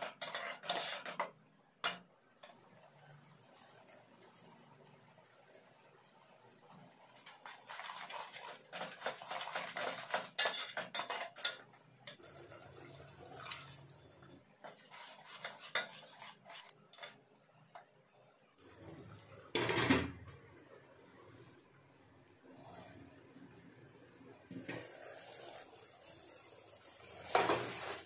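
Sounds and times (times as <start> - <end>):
spoon scraping metal pot: 0.0 - 2.0, 7.1 - 12.4, 14.5 - 17.2
water splashing into pot: 12.6 - 14.2.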